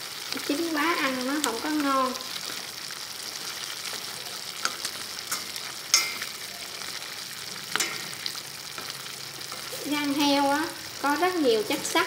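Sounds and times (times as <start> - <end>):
stir-fry sizzling in a pan: 0.0 - 12.0
chopsticks clacking against pan: 4.6 - 6.4, 7.7 - 8.2.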